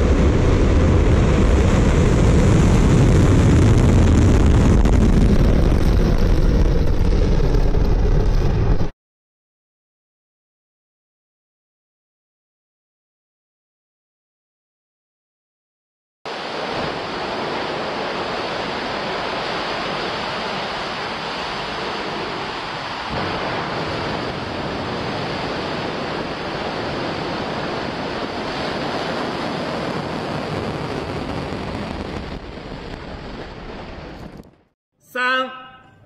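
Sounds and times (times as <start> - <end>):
rocket engines roaring: 0.0 - 8.9, 16.3 - 32.8.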